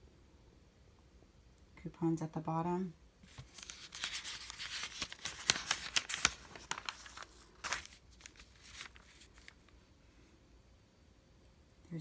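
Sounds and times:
paper pages crinkling: 3.2 - 9.8.

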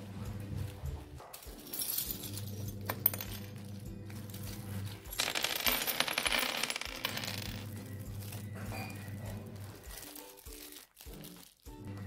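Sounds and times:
small glass pieces clinking: 1.6 - 9.3.

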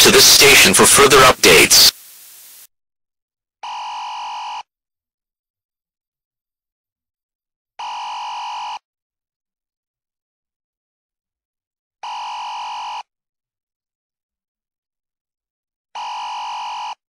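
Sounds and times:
faint hiss: 0.1 - 2.7.

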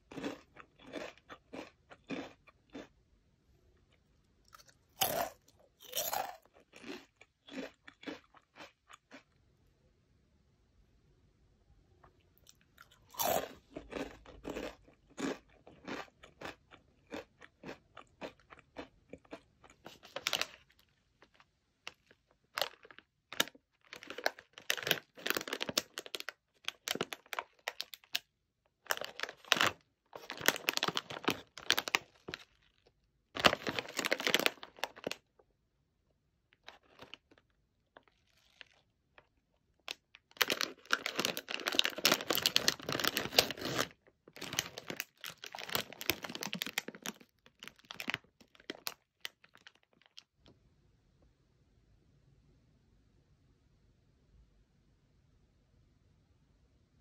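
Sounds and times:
crunching and chewing cracker: 0.0 - 9.7, 12.0 - 35.6, 36.4 - 50.4
plastic snack bag crinkling: 4.5 - 9.4, 12.5 - 35.3, 36.5 - 50.3.

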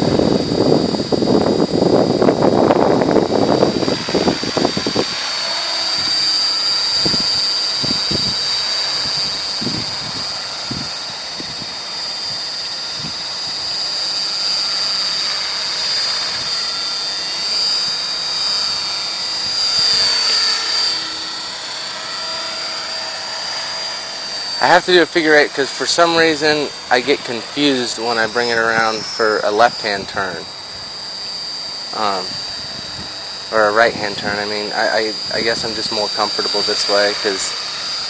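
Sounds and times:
wind buffeting microphone: 0.0 - 6.2, 6.8 - 12.4, 19.4 - 20.3, 32.0 - 33.2
model helicopter rotor whine: 0.0 - 38.0.

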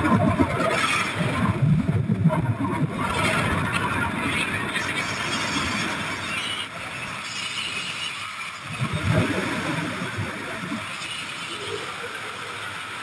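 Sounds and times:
wind buffeting microphone: 0.0 - 7.1, 8.6 - 11.0.

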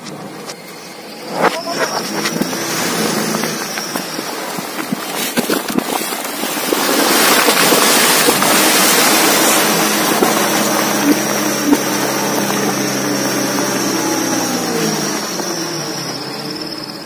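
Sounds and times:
dump truck engine running: 7.8 - 17.0.

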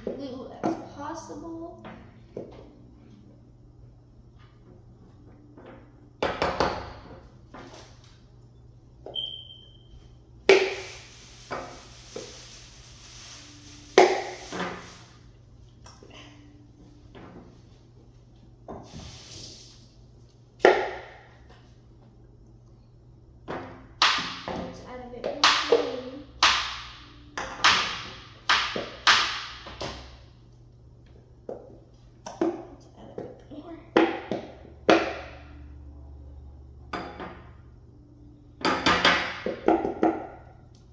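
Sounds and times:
thin high squeak: 9.1 - 10.0
air hissing from nozzle: 10.5 - 15.3, 18.8 - 19.9.

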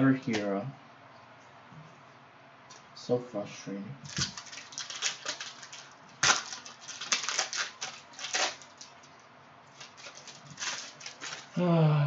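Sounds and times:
foil wrapper crinkling and tearing: 4.1 - 11.6.

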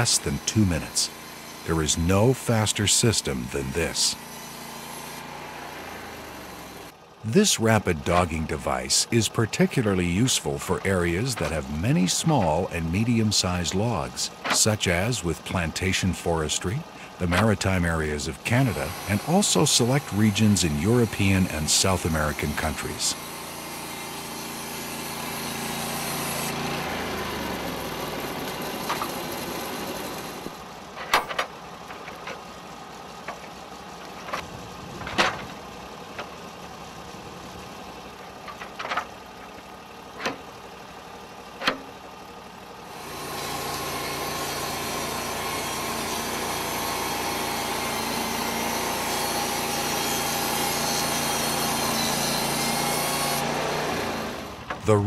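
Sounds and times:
sawmill engine running: 0.0 - 55.0.

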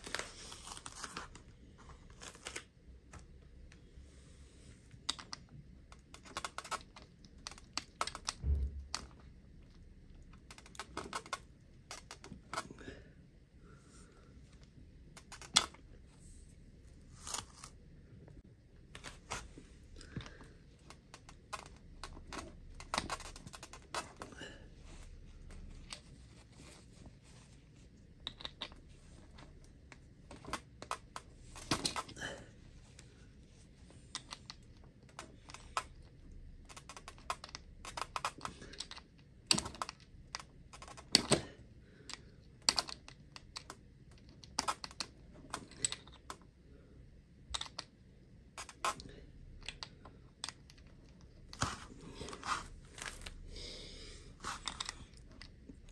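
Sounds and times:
clicks and taps handling toy wheels: 4.9 - 12.7, 28.2 - 32.2, 34.0 - 46.5, 47.4 - 48.0, 48.6 - 51.9, 54.4 - 55.9.

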